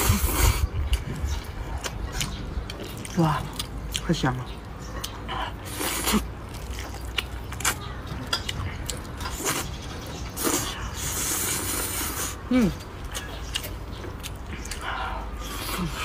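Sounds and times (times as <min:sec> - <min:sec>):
person slurping noodles: 0:00.0 - 0:00.7, 0:05.7 - 0:06.3, 0:10.4 - 0:12.8
wet chewing clicks: 0:00.0 - 0:16.0.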